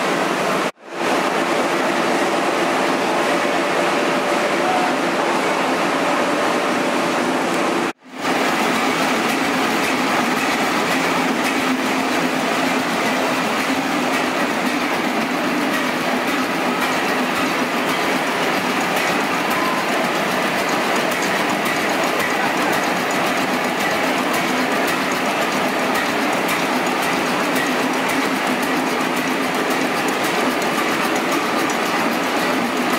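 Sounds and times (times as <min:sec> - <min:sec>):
stationary engine clattering: 0:07.8 - 0:32.9.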